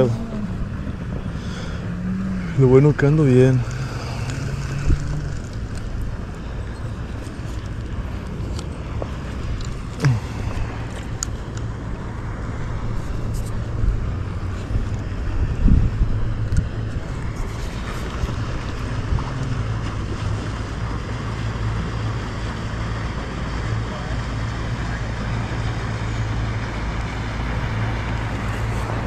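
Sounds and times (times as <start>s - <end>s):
wind on microphone: 0.0s - 8.4s, 12.3s - 21.0s
motorboat engine humming: 0.0s - 29.0s.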